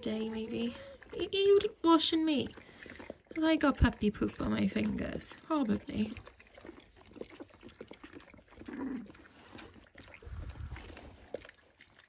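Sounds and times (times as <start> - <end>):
puppies grunting and squeaking: 0.0 - 12.0.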